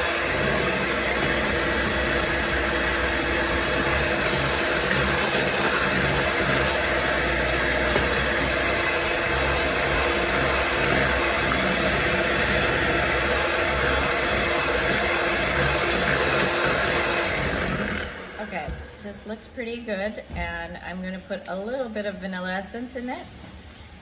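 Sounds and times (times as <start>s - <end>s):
electric hand mixer running: 0.0s - 19.0s.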